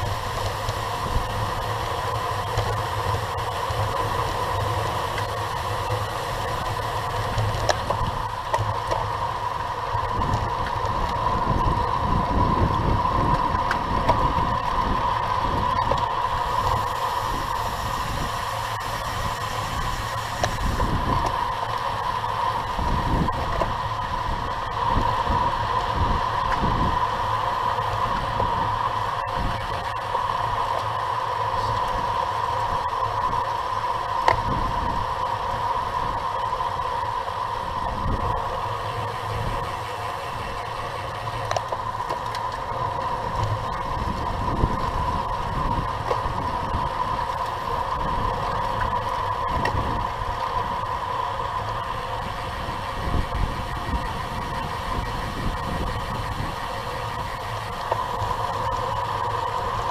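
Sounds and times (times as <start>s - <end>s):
bicycle tyre and road rumble: 0.0s - 59.9s
steady hum: 0.0s - 59.9s
wind buffeting microphone: 10.0s - 27.3s, 42.8s - 59.9s.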